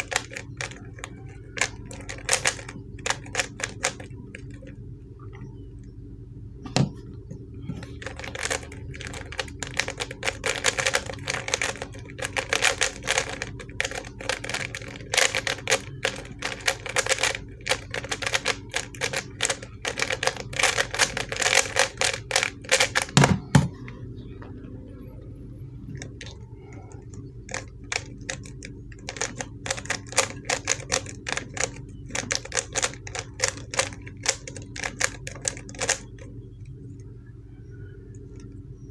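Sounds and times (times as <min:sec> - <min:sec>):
speed cube clicking: 0:00.0 - 0:04.7, 0:07.9 - 0:23.3, 0:27.5 - 0:36.3.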